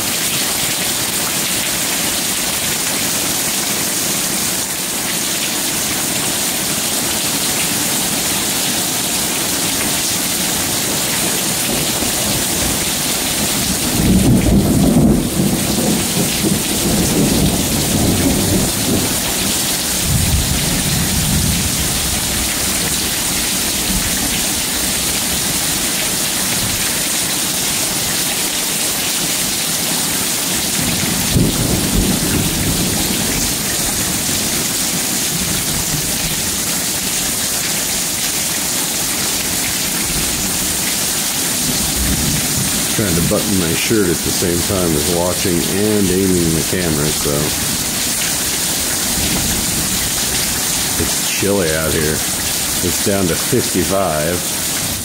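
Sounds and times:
heavy rain falling: 0.0 - 55.0
low thunder rumble: 13.4 - 19.3.

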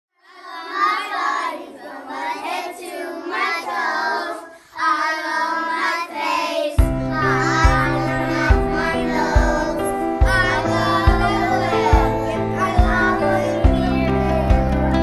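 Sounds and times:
children singing: 0.2 - 15.0
recorded music with steady beat: 6.8 - 13.0.

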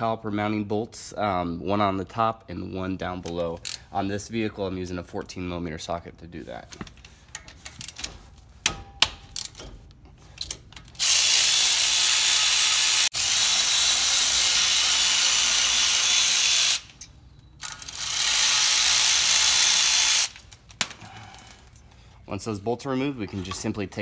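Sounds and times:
electric ratchet whirring: 11.0 - 20.5.

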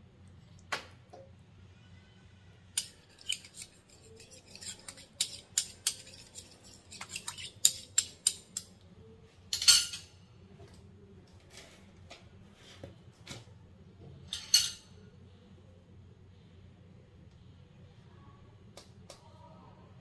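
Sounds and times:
spoon clatter: 2.8 - 8.7, 14.3 - 14.9
metal spoons clinking on clay pot: 2.8 - 8.8, 9.5 - 10.2, 14.3 - 15.0.

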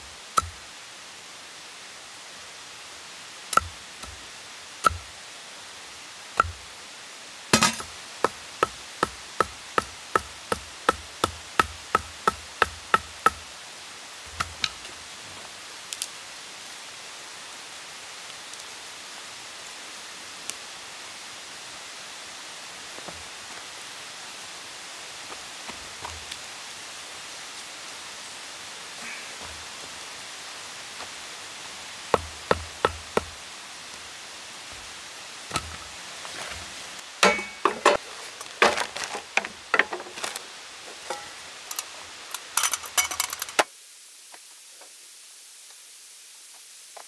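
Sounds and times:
faint steady hiss: 0.0 - 47.0
knife chopping wooden stick: 6.4 - 6.6, 32.2 - 33.3.

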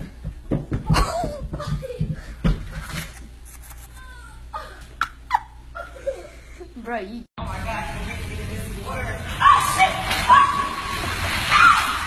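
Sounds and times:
body thumping on stairs: 0.0 - 3.0.

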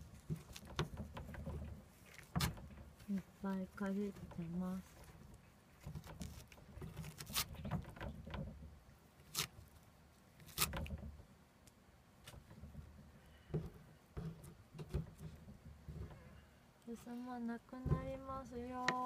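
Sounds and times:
cat gnawing paper and wood: 0.0 - 13.5.

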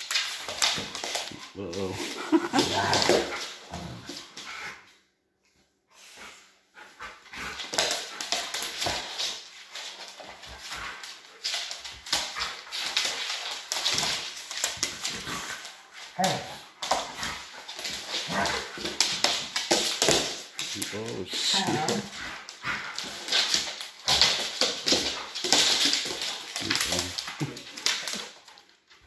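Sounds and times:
claws scuffling on hardwood floor: 7.4 - 29.0.

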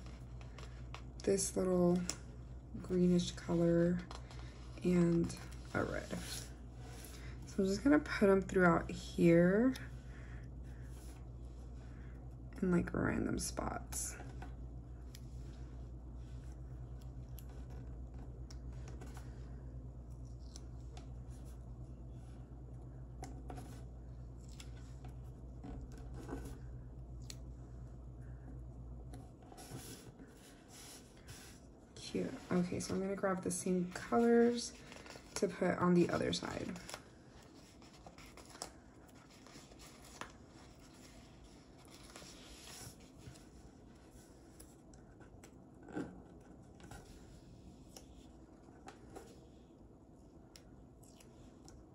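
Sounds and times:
steady low hum: 0.0 - 51.9
paper sticker sheet rustling: 32.2 - 44.8.

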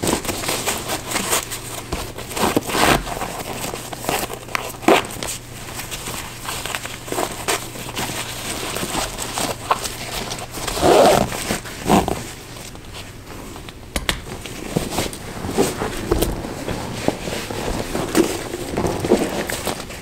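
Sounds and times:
laces and fabric rustling: 5.8 - 13.6.

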